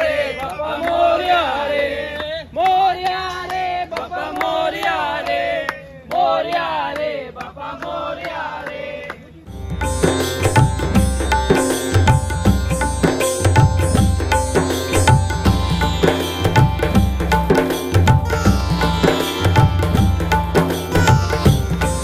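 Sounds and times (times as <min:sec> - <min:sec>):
voices chanting in unison: 0:00.0 - 0:09.2
regular sharp beats: 0:09.5 - 0:22.0.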